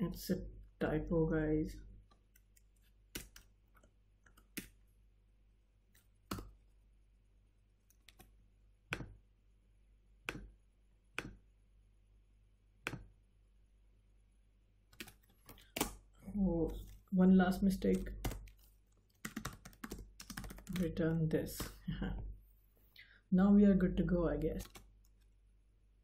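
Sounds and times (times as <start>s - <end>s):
keyboard and mouse clicks: 7.8s - 8.3s, 8.9s - 9.2s, 10.2s - 11.4s, 12.8s - 13.1s, 17.8s - 21.8s, 24.4s - 25.3s.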